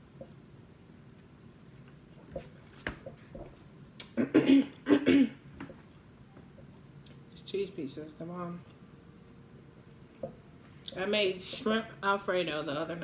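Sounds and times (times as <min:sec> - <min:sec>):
person coughing: 0:04.2 - 0:05.4.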